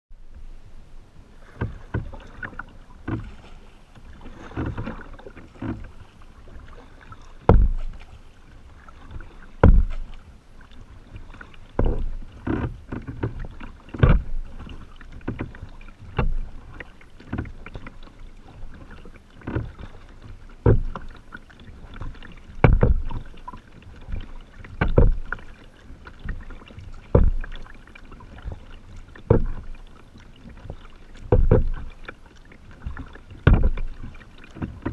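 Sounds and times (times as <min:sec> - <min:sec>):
kayak paddle splashing: 0:00.2 - 0:34.9
dull low thump: 0:01.5 - 0:02.2, 0:03.0 - 0:03.4, 0:07.4 - 0:08.2, 0:09.2 - 0:10.2, 0:11.7 - 0:16.7, 0:20.6 - 0:21.2, 0:22.0 - 0:23.4, 0:24.0 - 0:25.5, 0:26.2 - 0:27.7, 0:28.3 - 0:29.8, 0:30.5 - 0:32.2, 0:32.8 - 0:34.9.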